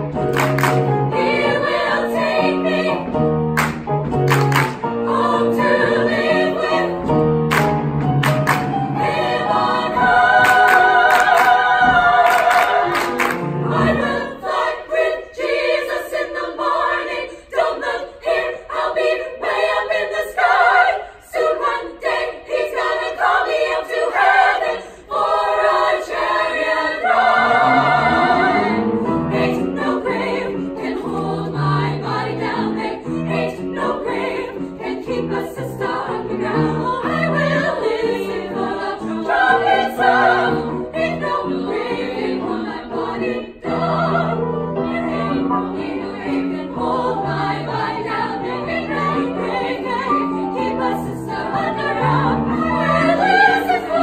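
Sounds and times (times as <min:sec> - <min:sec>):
women's choir singing in harmony: 0:00.0 - 0:54.0
sharp hand claps: 0:00.3 - 0:00.9, 0:03.6 - 0:04.8, 0:07.5 - 0:08.8, 0:10.4 - 0:11.6, 0:12.2 - 0:13.4.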